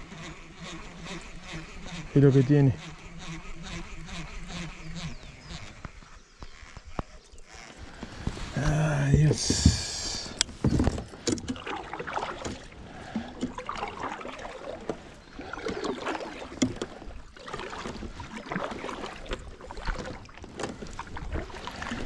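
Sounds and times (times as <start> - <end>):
paddle strokes splashing water: 7.7 - 22.0.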